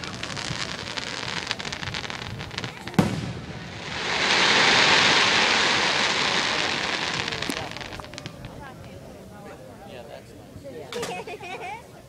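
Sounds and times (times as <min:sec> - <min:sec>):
firework bang: 0:00.0 - 0:08.6
dense hissing crackle: 0:00.0 - 0:08.7
fireworks crackling: 0:00.0 - 0:09.0.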